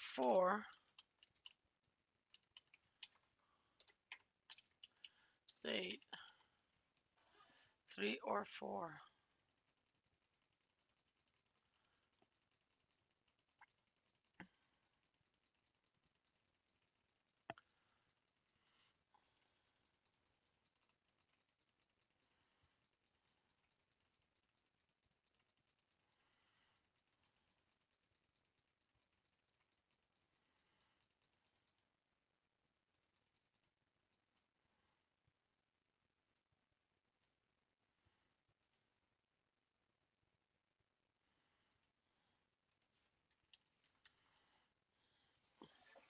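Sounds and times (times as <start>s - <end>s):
computer keyboard clicks: 0.6s - 1.6s, 2.3s - 6.0s.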